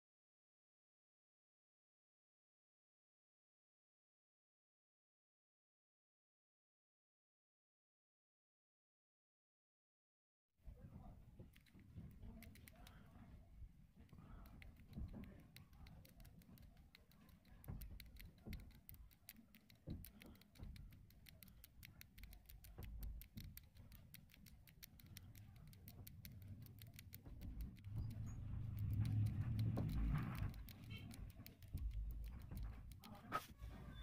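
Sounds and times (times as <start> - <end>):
fingers rubbing phone frame: 11.4 - 34.0
soft quick clicks: 11.5 - 13.2, 14.0 - 33.3.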